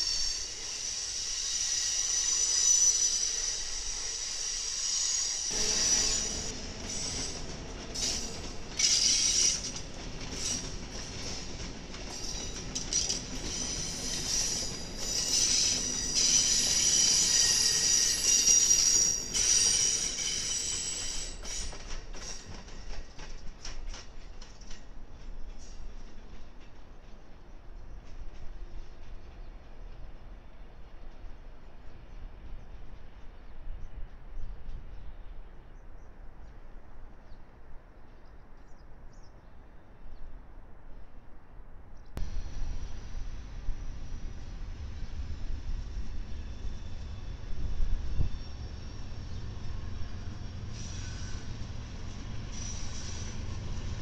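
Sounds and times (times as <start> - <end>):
train wheels squealing: 0.0 - 23.8, 42.2 - 54.0
low train rumble: 0.0 - 54.0
wheels clicking over rail joints: 6.5 - 27.2.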